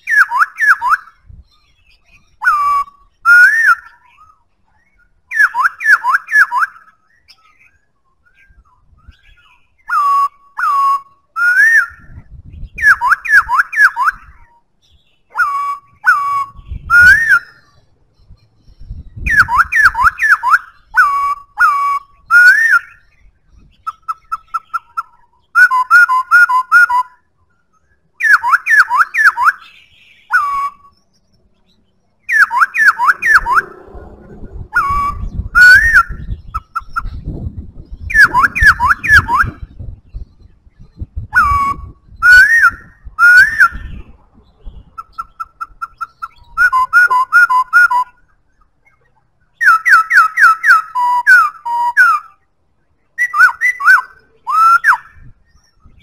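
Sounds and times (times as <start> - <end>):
bird singing whistled phrases: 0.0 - 33.8, 34.7 - 52.5, 53.1 - 56.0
low rumble: 33.1 - 42.2.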